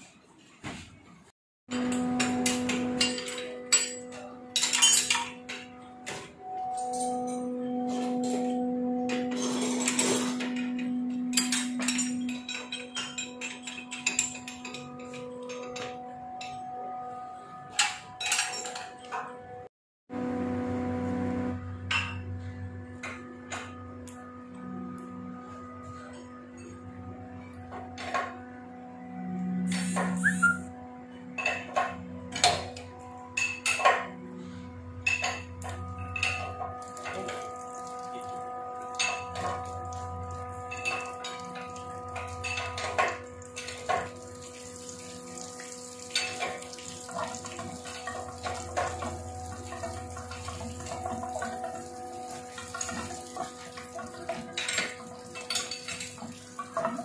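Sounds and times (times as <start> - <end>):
metal clinks and clanks: 1.8 - 5.7, 6.6 - 16.8, 17.7 - 19.4, 35.0 - 44.2, 46.1 - 57.0.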